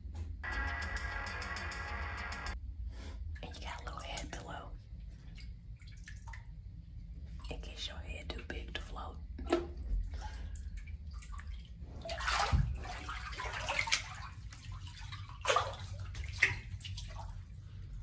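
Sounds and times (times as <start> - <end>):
water sloshing and splashing: 3.4 - 7.8, 9.3 - 18.0.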